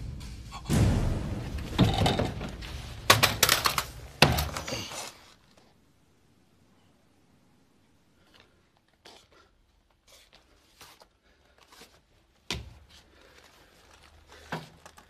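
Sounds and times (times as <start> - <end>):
dull thump: 0.0 - 3.5.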